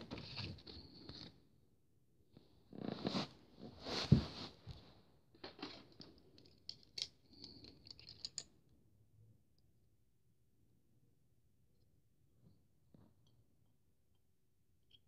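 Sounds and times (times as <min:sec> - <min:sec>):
small plastic parts clicking: 0:06.4 - 0:08.5.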